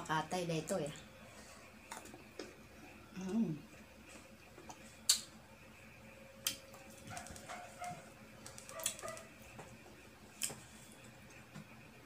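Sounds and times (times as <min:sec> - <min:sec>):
crunchy chewing: 0:06.4 - 0:11.5.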